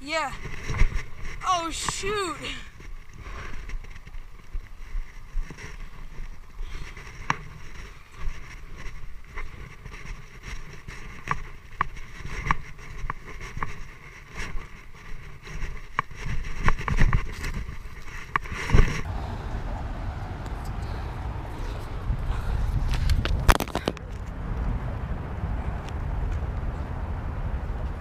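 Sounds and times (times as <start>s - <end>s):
low microphone rumble: 19.0s - 28.0s.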